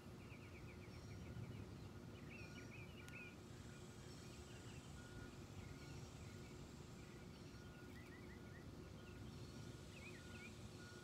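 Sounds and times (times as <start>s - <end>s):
faint birds chirping: 0.0s - 11.0s.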